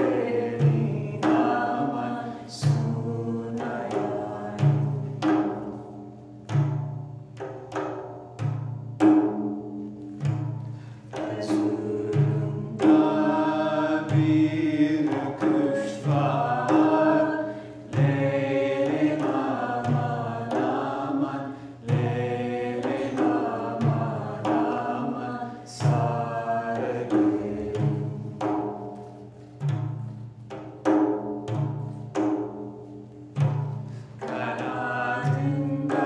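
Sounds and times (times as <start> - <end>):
person singing folk song: 0.0 - 5.2, 11.0 - 28.3, 34.0 - 36.0
frame drums: 0.0 - 36.0.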